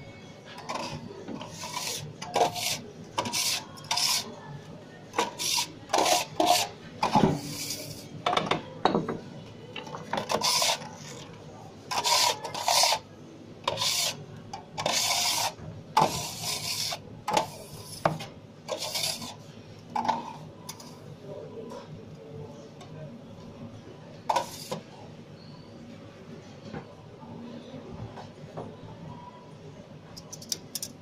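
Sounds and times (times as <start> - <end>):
metal scraper rasping on worktop: 1.4 - 4.3, 5.2 - 8.0, 10.2 - 10.9, 11.9 - 13.0, 13.7 - 14.2, 14.8 - 19.4.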